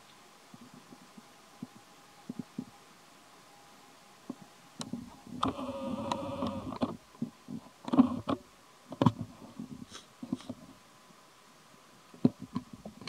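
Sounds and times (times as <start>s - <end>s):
soft knocks and crackles: 4.2s - 10.8s, 12.1s - 13.0s.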